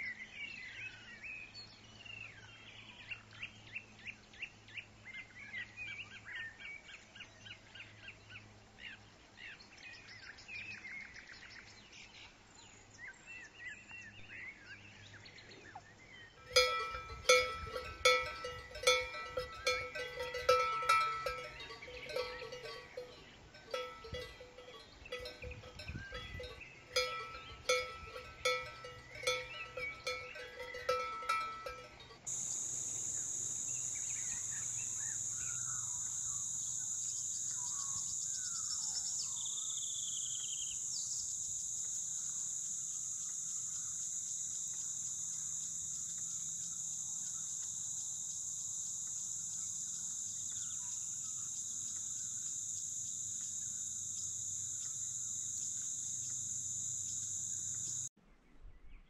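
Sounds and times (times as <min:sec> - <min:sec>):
bird chirps: 0:15.4 - 0:42.0
cowbells clanking: 0:16.4 - 0:35.1
high insect drone: 0:16.4 - 0:58.1.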